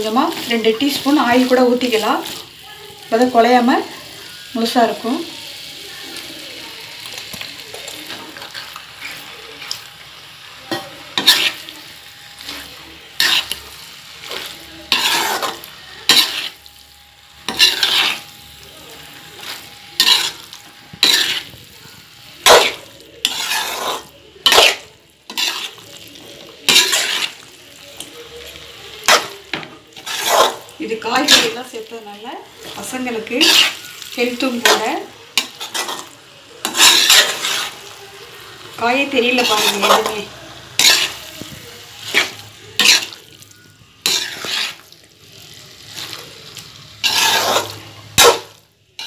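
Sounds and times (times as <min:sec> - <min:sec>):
faint sizzle: 0:00.0 - 0:49.0
spatula scraping metal pan: 0:10.7 - 0:16.8, 0:17.4 - 0:18.4, 0:19.1 - 0:21.6, 0:22.4 - 0:27.5, 0:29.0 - 0:31.8, 0:32.4 - 0:37.9, 0:38.7 - 0:41.4, 0:42.0 - 0:43.4, 0:44.0 - 0:45.0, 0:46.9 - 0:49.0.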